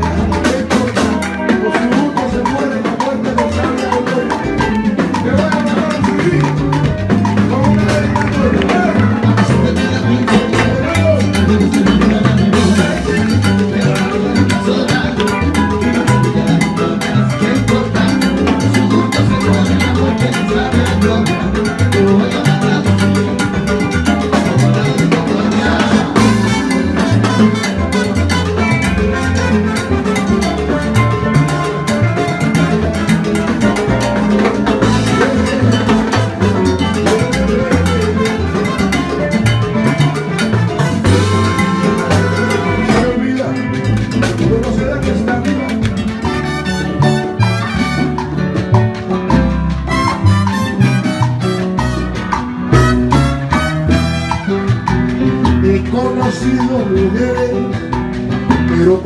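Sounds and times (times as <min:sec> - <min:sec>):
congas: 0:00.0 - 0:59.0
latin band playing live: 0:00.0 - 0:59.0
horns: 0:40.2 - 0:43.4, 0:46.2 - 0:48.6, 0:49.9 - 0:55.0.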